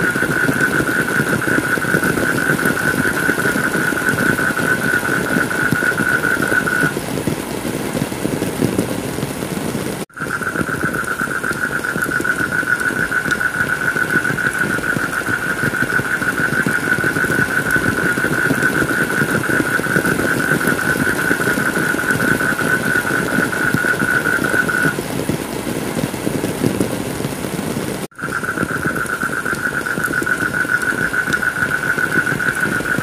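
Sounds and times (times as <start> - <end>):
high-pitched whine: 0.0 - 7.0
heavy rain: 0.0 - 33.0.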